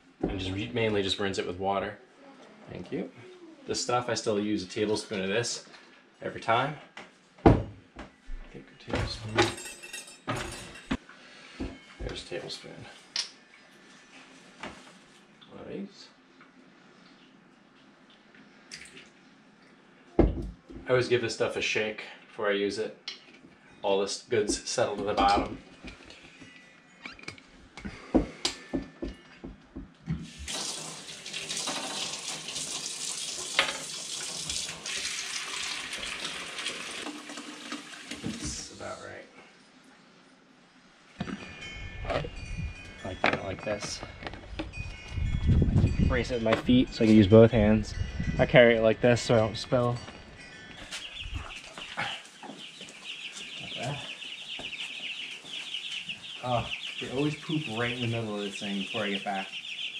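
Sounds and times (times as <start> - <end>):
faucet running into bucket: 30.2 - 38.8
chicks peeping: 50.9 - 59.9.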